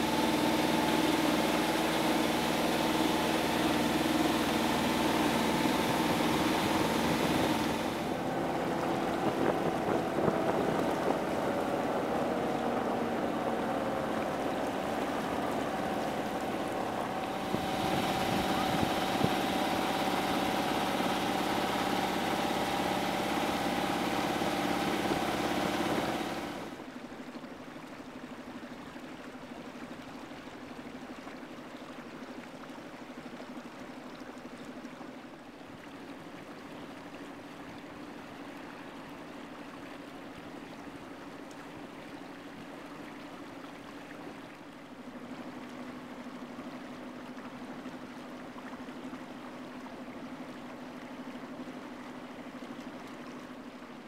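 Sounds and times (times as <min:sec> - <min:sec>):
water wash: 0:00.0 - 0:27.0
boat engine running: 0:00.0 - 0:27.1.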